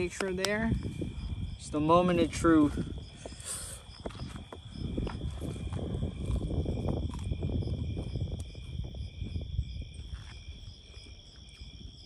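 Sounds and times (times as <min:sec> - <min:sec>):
crickets chirping: 0:00.0 - 0:12.0
chewing and crunching crispy food: 0:05.0 - 0:11.6.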